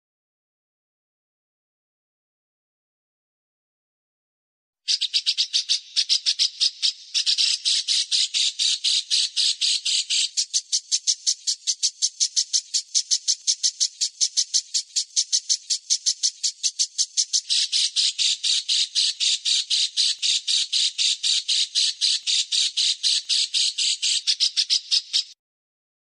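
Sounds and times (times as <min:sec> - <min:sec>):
songbird harsh rapid chatter: 0:04.9 - 0:25.4.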